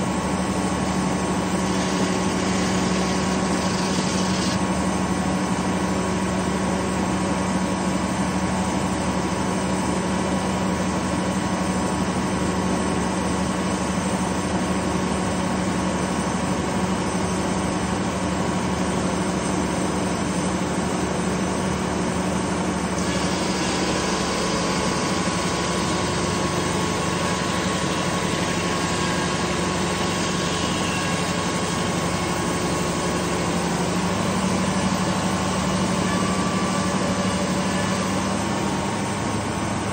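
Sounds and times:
diesel engine running: 0.0s - 39.9s
saw blade spinning: 1.4s - 4.6s.

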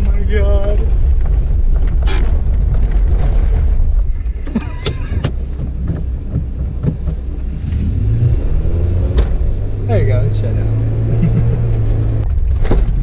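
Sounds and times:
engine rumble on rough ground: 0.0s - 13.0s
sharp knocks: 2.0s - 7.3s.

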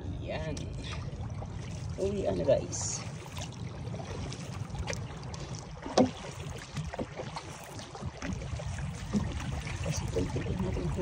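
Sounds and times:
steady low rumble: 0.0s - 6.3s
paddle splashing in water: 0.6s - 11.0s.

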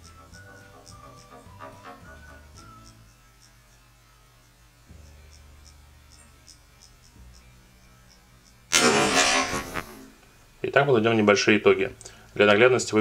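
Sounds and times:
faint high ticks: 2.5s - 3.6s.

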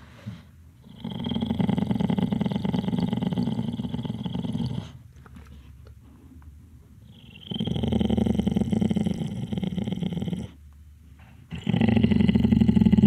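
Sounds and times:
small dog snoring: 0.8s - 5.0s, 7.1s - 10.6s.

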